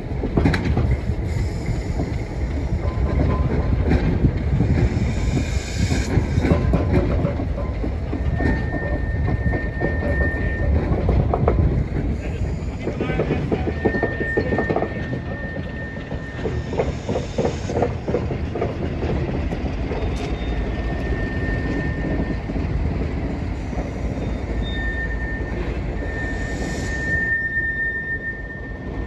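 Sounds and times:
railroad cars rumbling: 0.0 - 29.0
knocks and clanks: 0.2 - 1.1, 2.0 - 5.0, 5.9 - 20.6
high wheel squeal: 4.6 - 18.3, 19.8 - 29.0.

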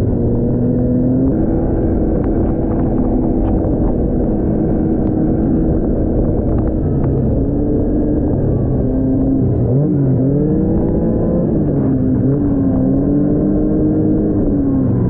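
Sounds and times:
snowmobile engine running: 0.0 - 15.0.

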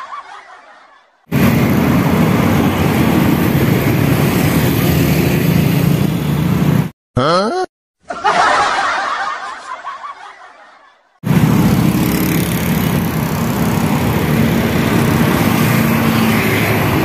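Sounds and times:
cars driving past: 1.3 - 6.9, 11.2 - 17.0
cartoon chuckling sound effect: 7.2 - 9.1.

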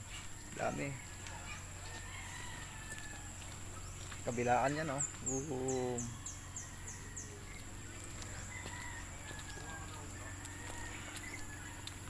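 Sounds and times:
distant bird calls: 0.0 - 12.0.

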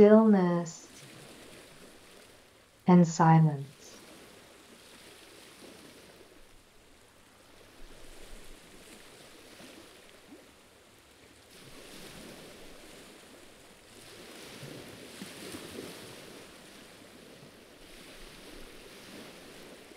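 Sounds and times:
light wind: 3.9 - 19.9.

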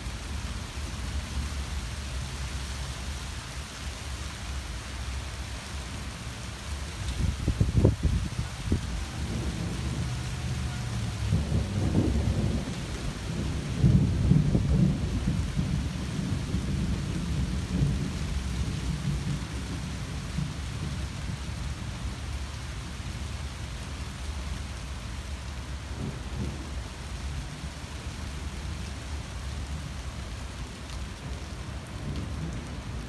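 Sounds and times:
falling rain: 0.0 - 33.0
thunder rumbling: 7.2 - 21.6, 25.9 - 26.8.

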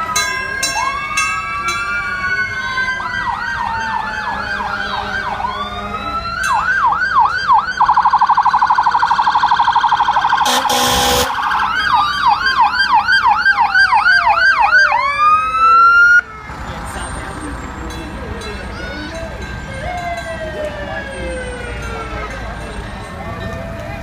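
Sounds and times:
siren wail: 0.0 - 16.3, 19.6 - 22.5
electronic sirens yelping: 0.6 - 16.3.

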